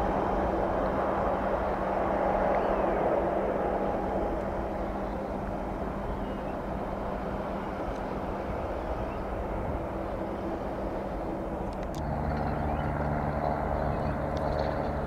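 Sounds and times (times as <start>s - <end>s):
jet engines humming at low power: 0.0s - 15.0s.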